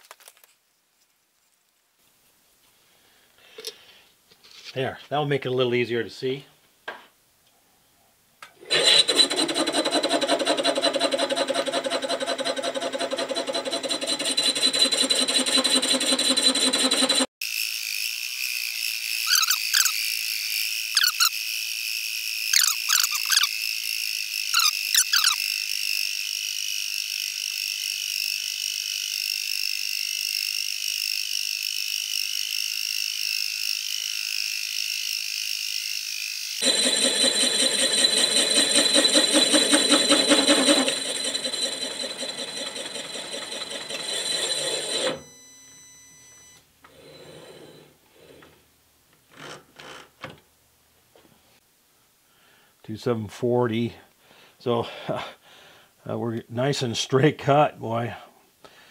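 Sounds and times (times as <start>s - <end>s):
milling machine whine: 8.7s - 17.3s, 36.0s - 47.9s.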